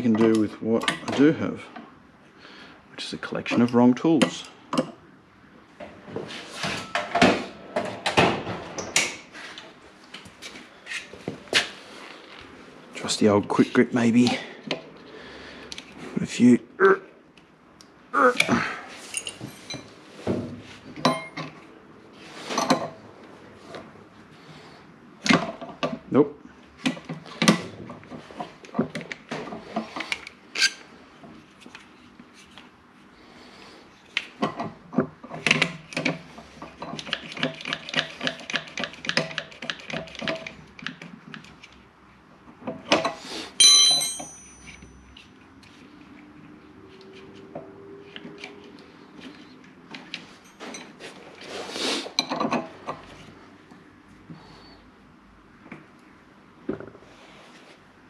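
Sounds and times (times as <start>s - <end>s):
metal tools clinking on steel: 19.1s - 19.9s, 43.6s - 45.2s.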